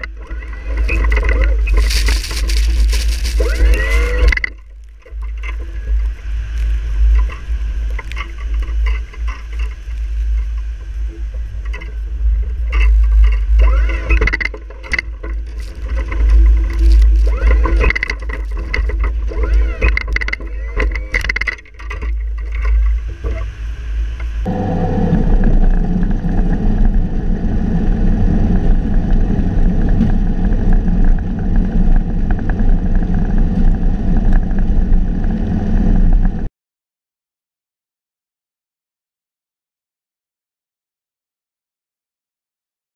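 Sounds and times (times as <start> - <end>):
snow plow blade pushing snow: 0.0 - 36.5
loader engine running: 10.4 - 36.5.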